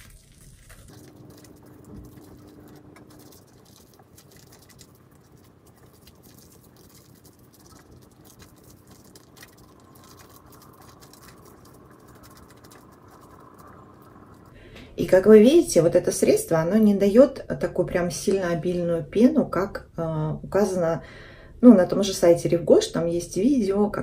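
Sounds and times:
cleansing brush scrubbing wet skin: 0.0s - 14.5s.

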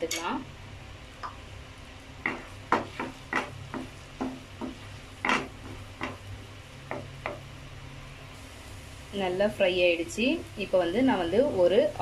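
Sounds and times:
garlic sizzling in butter: 1.8s - 12.0s
spatula scraping a pan: 4.6s - 6.2s.

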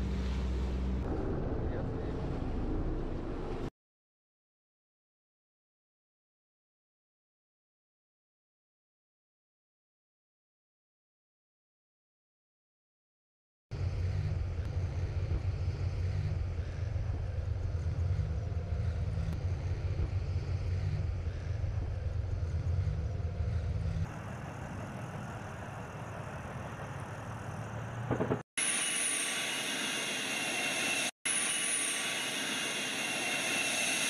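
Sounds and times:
armoured vehicle engine and tracks: 0.0s - 3.7s, 13.7s - 34.0s
engine with high whine: 0.0s - 3.7s, 13.7s - 34.0s.

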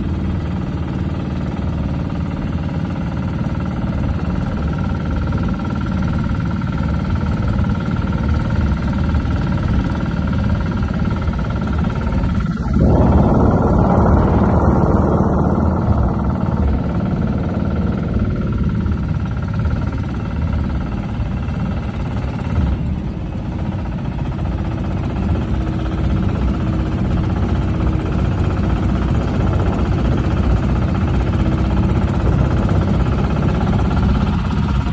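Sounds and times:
boat engine running: 0.0s - 34.9s
loud rushing noise: 11.8s - 19.3s.

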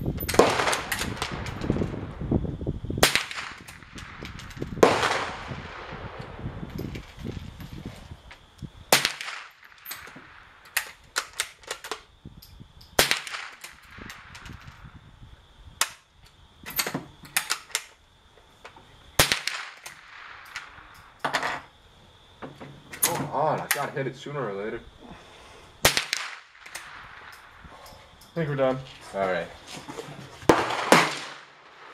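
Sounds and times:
rimfire gunshots: 0.4s - 1.5s, 4.8s - 6.2s, 25.8s - 27.2s, 30.5s - 31.9s.

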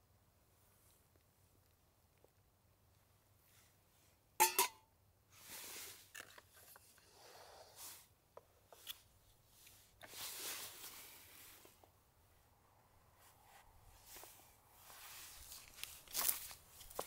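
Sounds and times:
rustling and brushing: 5.3s - 17.0s.

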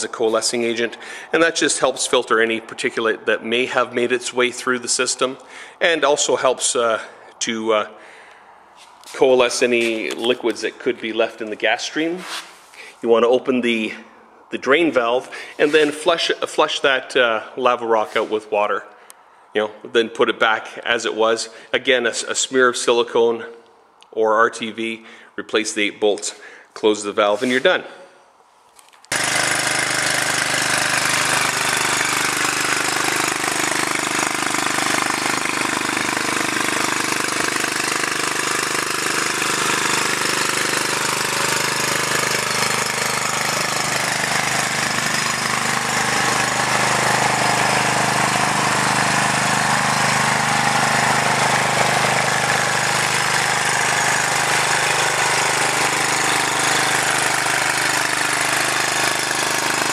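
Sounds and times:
small engine generator running: 0.0s - 5.8s, 29.1s - 59.9s.

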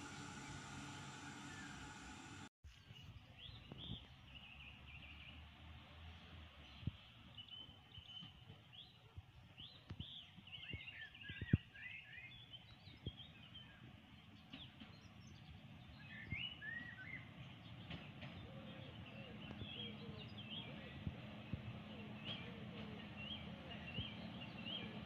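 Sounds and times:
small birds chirping and singing: 2.7s - 5.4s, 6.1s - 25.0s.

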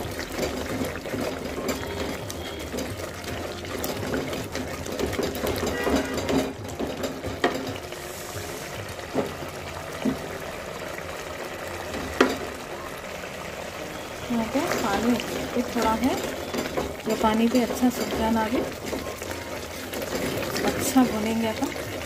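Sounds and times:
food bubbling in a pot: 0.0s - 22.0s
spoon scraping and knocking pot: 3.8s - 7.8s.

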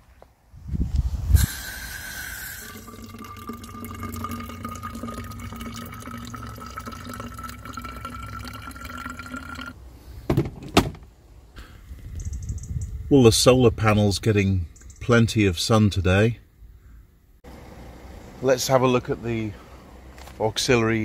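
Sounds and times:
water pouring into plastic bottle: 1.6s - 9.8s.

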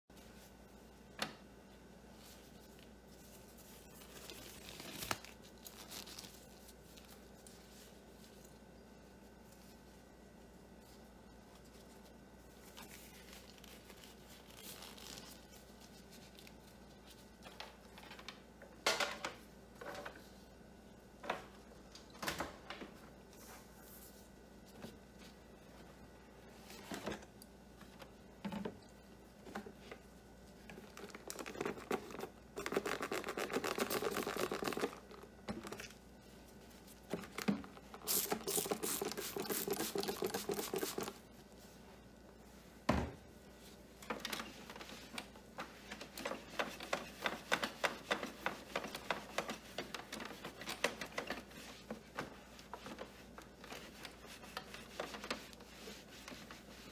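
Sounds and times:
plastic glove crinkles and clicks: 2.3s - 8.7s, 10.8s - 18.4s, 30.5s - 41.2s.

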